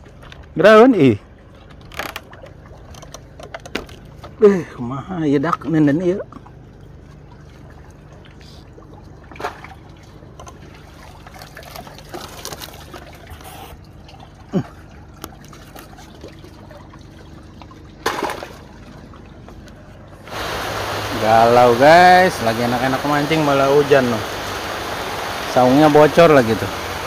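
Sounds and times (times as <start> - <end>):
rainwater trickling and dripping: 18.6 - 27.0
heavy rain: 20.3 - 27.0.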